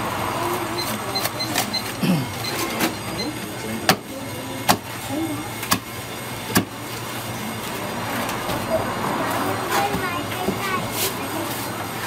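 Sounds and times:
cleaver chopping meat on wood: 4.7s - 4.9s, 6.5s - 6.7s.

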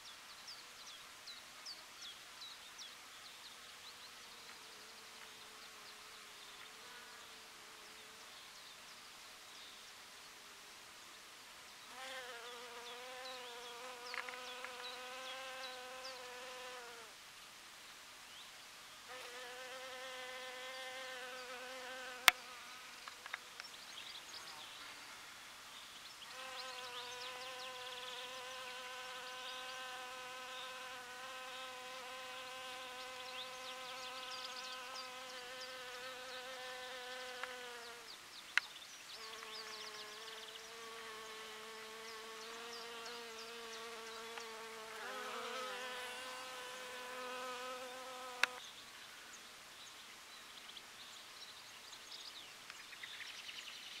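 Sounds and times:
honeybee buzzing: 12.0s - 17.1s, 19.1s - 23.0s, 26.3s - 38.1s, 39.2s - 48.6s.

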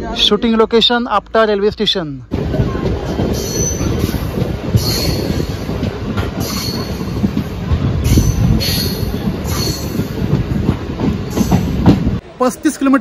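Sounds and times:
electric train rumbling: 0.0s - 13.0s
high wheel squeals: 8.1s - 10.0s.

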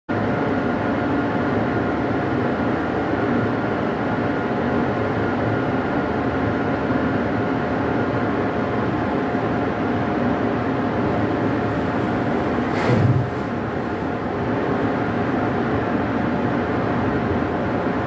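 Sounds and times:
steady whine: 8.4s - 17.6s
machinery droning: 10.7s - 16.0s.

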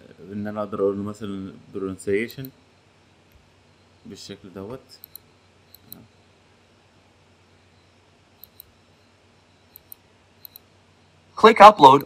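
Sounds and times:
computer mouse clicks: 5.0s - 6.1s, 8.4s - 8.8s, 9.7s - 10.7s.

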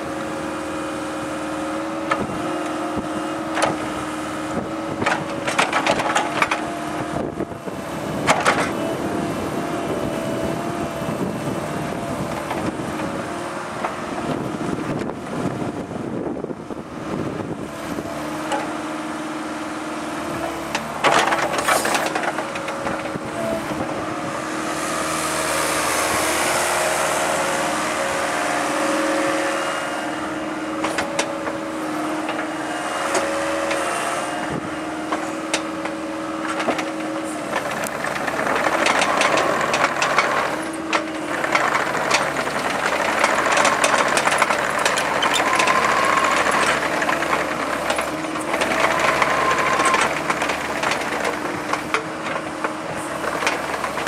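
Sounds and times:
diesel engine running: 0.0s - 54.0s
hydraulic whine: 0.0s - 54.0s
metallic clanks of excavator bucket: 20.3s - 23.8s, 35.1s - 54.0s.

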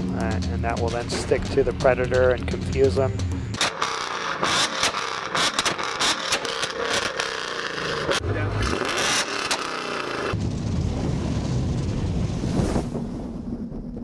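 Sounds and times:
car engine revving: 0.0s - 10.4s
exhaust pops and cracks: 3.6s - 14.0s.

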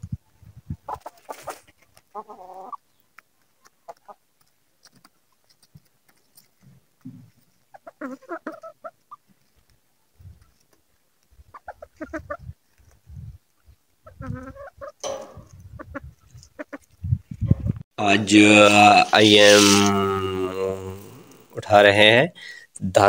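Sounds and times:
chickens clucking: 0.0s - 17.8s.

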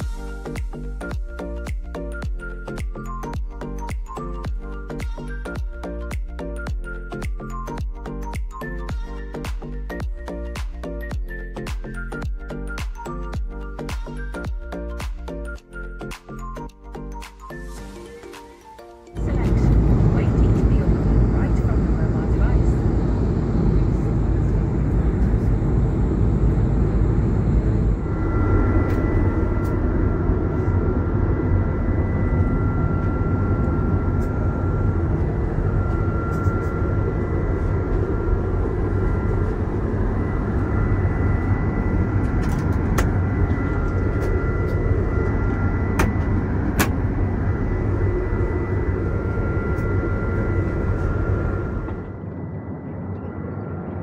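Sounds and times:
airliner engine and airflow roar: 17.7s - 54.0s
high whines: 19.2s - 54.0s.

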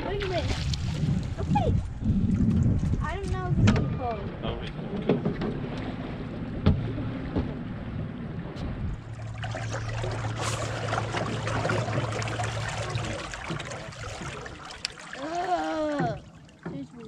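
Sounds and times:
water lapping around hull: 0.0s - 17.0s
electric trolling motor humming: 5.5s - 15.3s.

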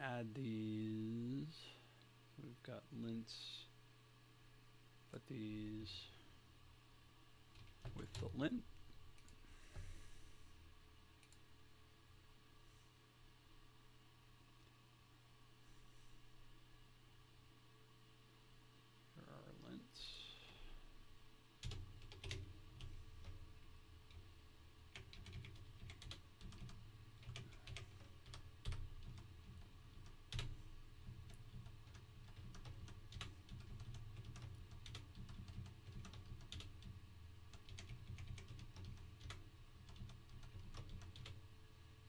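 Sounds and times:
low steady hum: 0.0s - 42.0s
computer keyboard typing: 7.6s - 8.3s, 21.6s - 23.4s, 24.9s - 41.4s.

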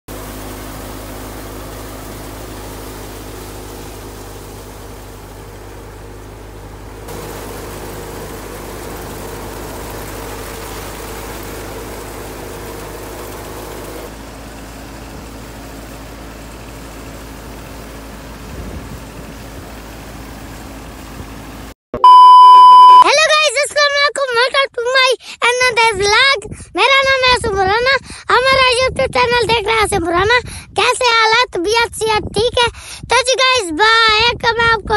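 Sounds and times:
tractor engine running: 0.1s - 21.7s.

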